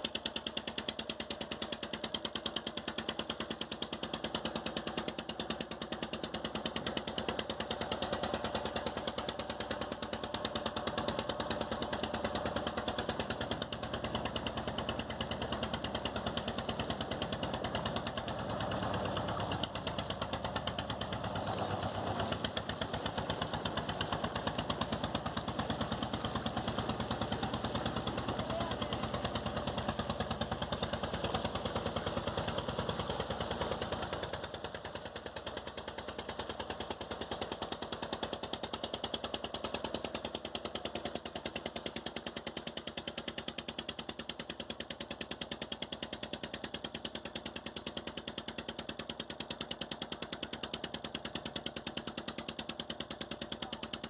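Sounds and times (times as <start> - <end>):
boat engine pulsing: 0.0 - 54.0.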